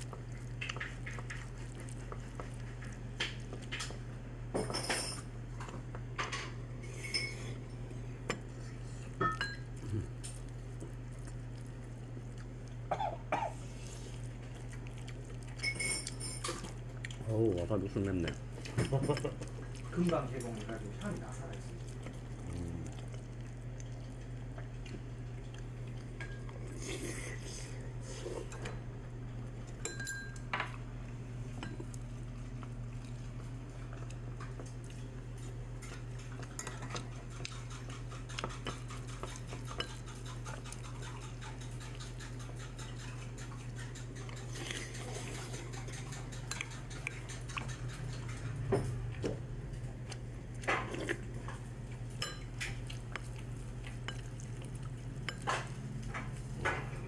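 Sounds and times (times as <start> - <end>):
steady low hum: 0.0 - 57.0
tableware clinks and knocks: 4.6 - 5.3, 6.2 - 7.5, 15.6 - 16.6
spoon scraping rice in bowl: 36.5 - 48.5.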